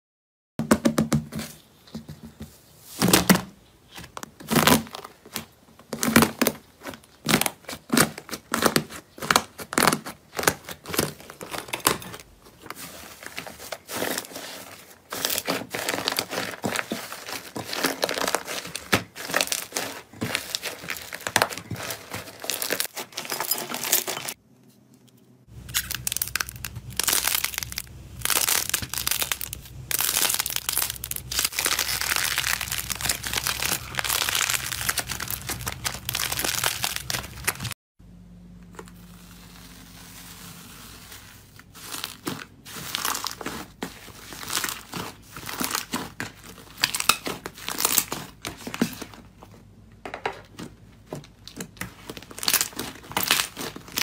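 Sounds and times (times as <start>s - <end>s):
slime crackling and popping: 5.9s - 12.0s, 25.6s - 37.7s, 41.8s - 48.7s, 51.8s - 54.0s
low hum: 24.4s - 40.1s.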